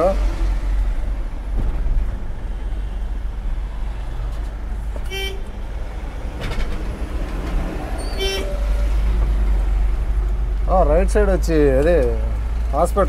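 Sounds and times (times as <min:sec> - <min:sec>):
vehicle driving rumble: 0:00.0 - 0:13.0
vehicle horn toots: 0:05.0 - 0:05.5, 0:08.0 - 0:08.7.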